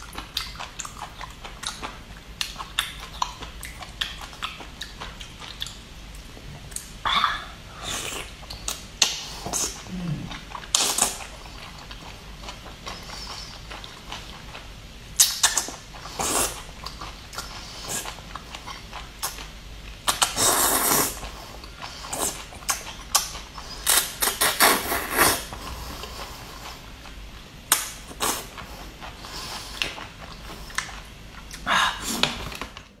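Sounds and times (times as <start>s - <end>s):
chewing: 0.0s - 7.0s, 7.8s - 19.5s, 20.1s - 32.9s
noodle slurping: 20.1s - 21.3s, 23.8s - 26.8s.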